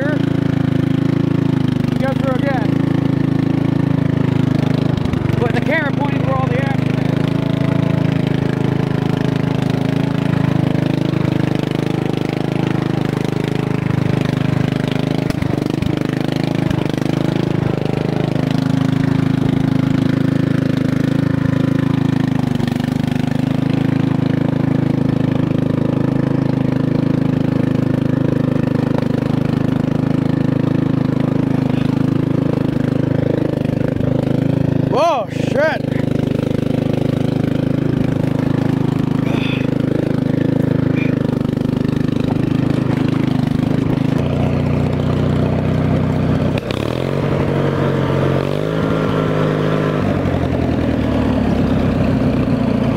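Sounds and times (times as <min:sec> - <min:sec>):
unmuffled engine running: 0:00.0 - 0:52.9.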